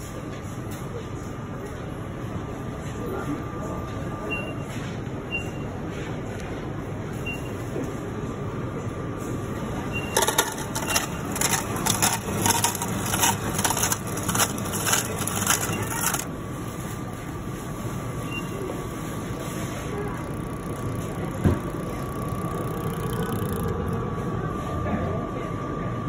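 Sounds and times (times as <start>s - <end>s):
milkshake machine humming: 0.8s - 26.0s
rapid crackling and crunching: 10.2s - 16.3s.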